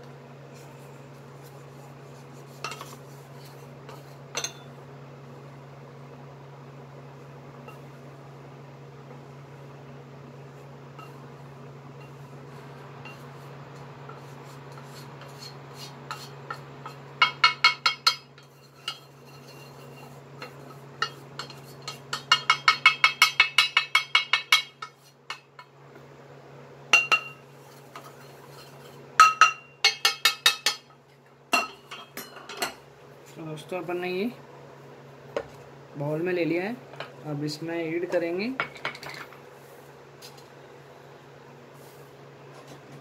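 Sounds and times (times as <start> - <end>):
cooktop hum: 0.0 - 43.0
spatula knocking steel pan: 17.2 - 19.0, 21.0 - 25.5, 29.2 - 30.9.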